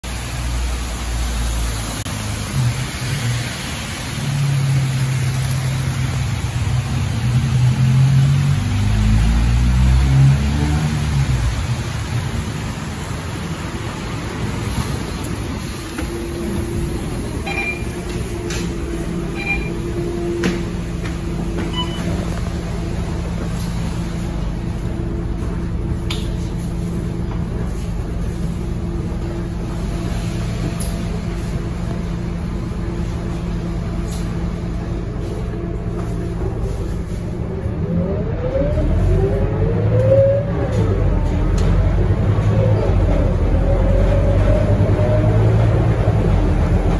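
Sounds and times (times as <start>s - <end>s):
tyres hissing on wet road: 0.0s - 21.4s, 22.2s - 37.4s
low engine hum of buses: 0.0s - 46.9s.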